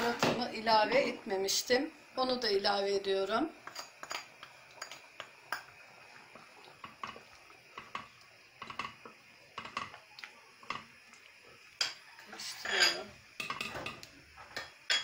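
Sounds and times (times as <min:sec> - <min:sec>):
spoon stirring in metal pot: 0:03.6 - 0:10.0, 0:11.8 - 0:15.0.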